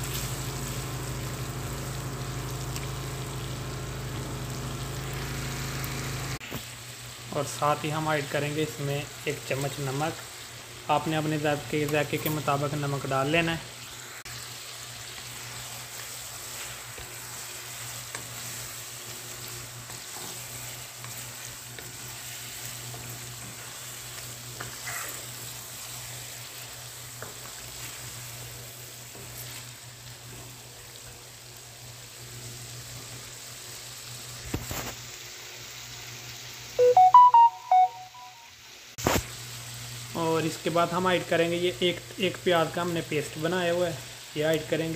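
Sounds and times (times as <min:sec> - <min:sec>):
chicken sizzling in a pan: 0:00.0 - 0:37.1, 0:37.9 - 0:44.9
short electronic beeps: 0:36.8 - 0:38.5.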